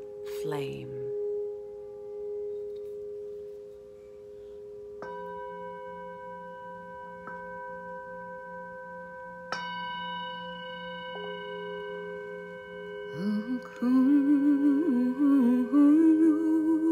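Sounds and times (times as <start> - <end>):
metal singing bowl ringing: 5.0 - 16.3.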